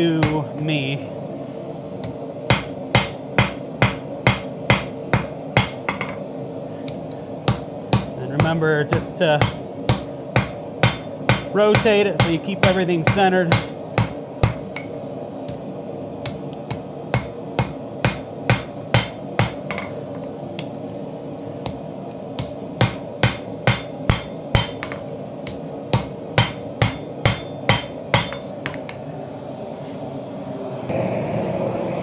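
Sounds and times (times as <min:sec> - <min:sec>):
steady hum: 0:00.0 - 0:32.0
hammer striking steel on anvil: 0:00.2 - 0:00.5, 0:02.0 - 0:06.3, 0:06.9 - 0:15.6, 0:16.2 - 0:20.7, 0:22.4 - 0:29.0.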